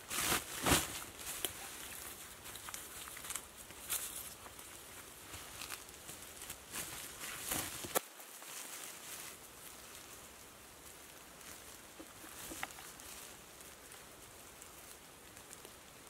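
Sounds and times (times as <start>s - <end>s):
plastic sack rustling: 0.0s - 10.3s.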